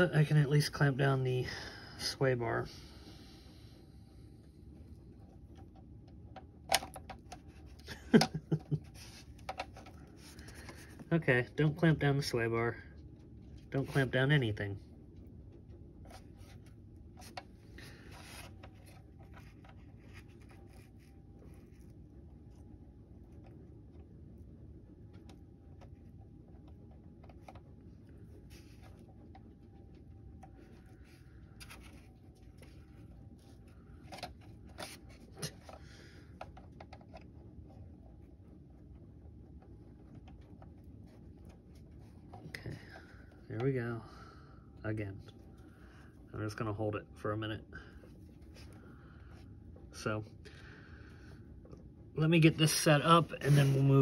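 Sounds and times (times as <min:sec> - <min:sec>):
low steady hum: 0:00.0 - 0:54.0
hands rubbing plastic parts: 0:05.2 - 0:11.1, 0:15.5 - 0:24.4, 0:25.0 - 0:43.7, 0:52.6 - 0:54.0.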